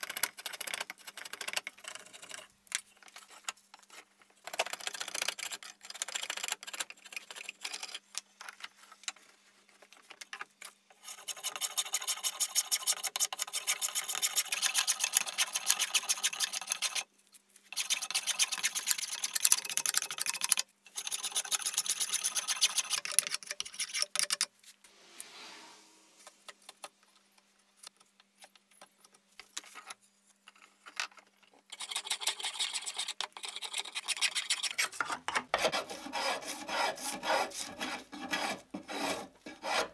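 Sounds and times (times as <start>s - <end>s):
blade shaving wood: 35.6s - 39.9s.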